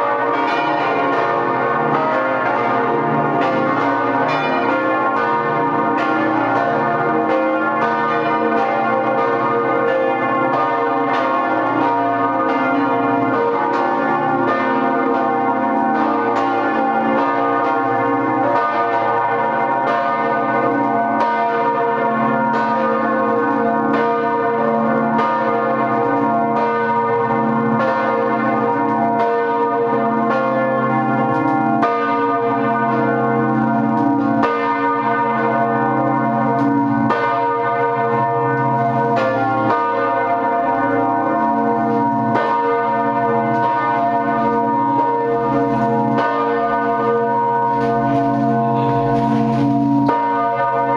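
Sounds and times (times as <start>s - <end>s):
church bells ringing in peal: 0.0s - 50.9s.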